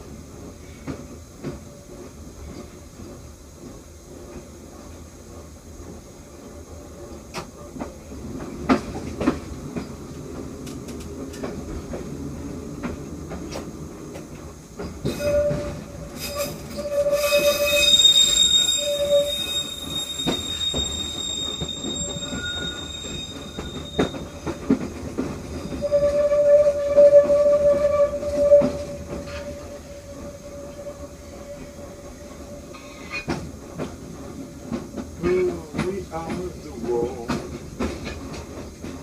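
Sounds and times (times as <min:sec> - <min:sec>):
train wheels squealing: 0:14.8 - 0:33.9.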